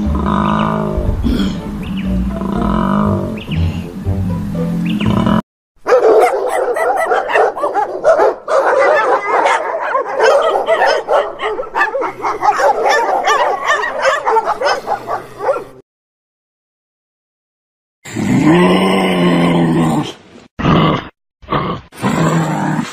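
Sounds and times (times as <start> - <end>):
dogs barking and yipping: 5.8 - 15.8.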